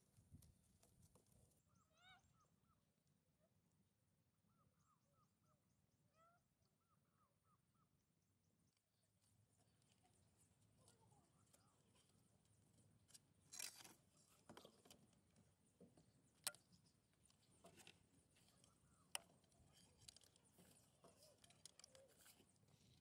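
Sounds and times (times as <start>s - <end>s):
small ticks: 16.0s - 23.0s.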